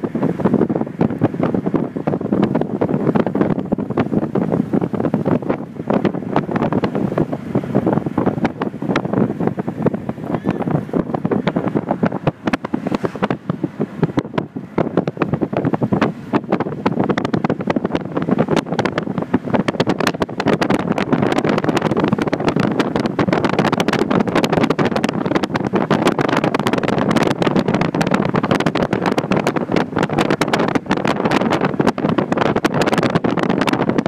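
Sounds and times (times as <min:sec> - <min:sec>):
vehicle engine and road noise: 0:00.0 - 0:34.0
wind buffeting microphone: 0:00.0 - 0:34.0.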